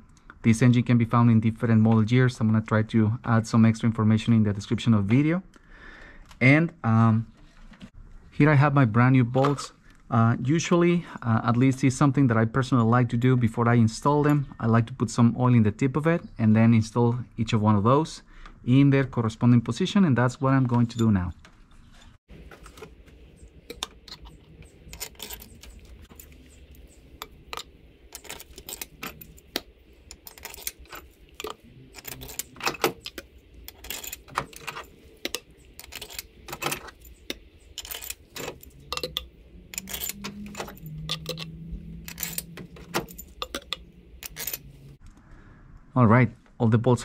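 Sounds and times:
metal bolts clinking: 22.5s - 44.8s.

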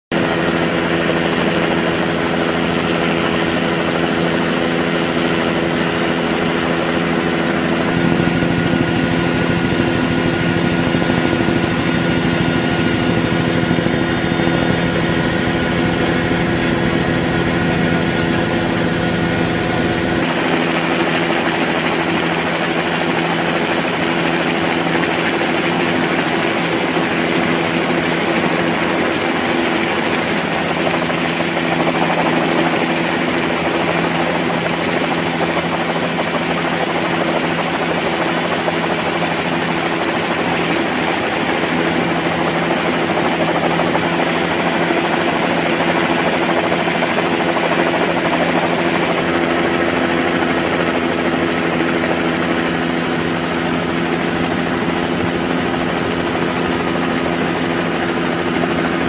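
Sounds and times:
aircraft engine and rotor drone: 0.0s - 59.0s.

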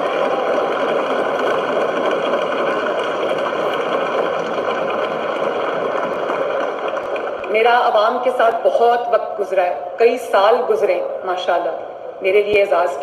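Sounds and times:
sustained applause through tv speaker: 0.0s - 8.4s.

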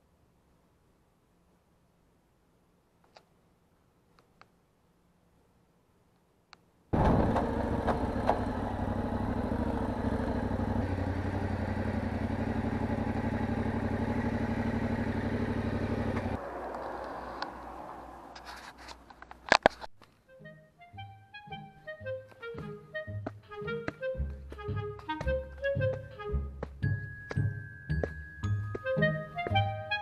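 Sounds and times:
motorcycle engine running: 7.0s - 16.6s.

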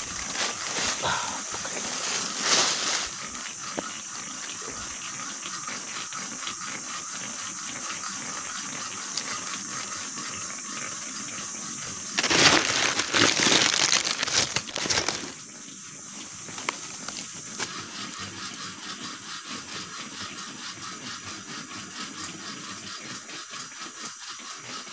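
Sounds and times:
small stones shifting: 0.0s - 3.3s, 12.2s - 15.4s
dry leaves crackling: 0.0s - 3.8s, 12.1s - 15.4s
rustling and scraping: 0.0s - 3.9s, 12.2s - 15.4s
steady high hiss: 0.0s - 3.9s.

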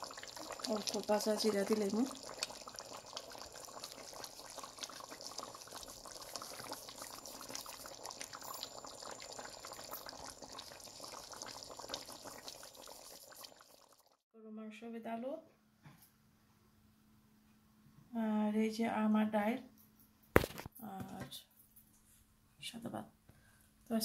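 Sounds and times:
curry bubbling in a pot: 0.0s - 14.2s.

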